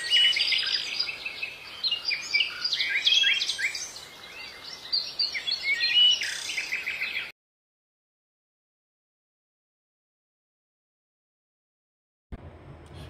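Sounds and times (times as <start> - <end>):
small birds chirping and singing: 0.0 - 7.3.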